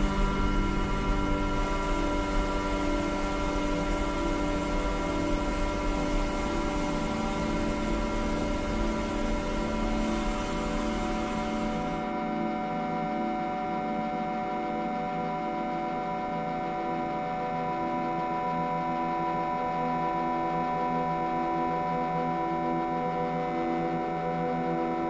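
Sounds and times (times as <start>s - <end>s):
sustained drone tones: 0.0s - 8.8s
hiss-like noise wash: 0.0s - 12.0s.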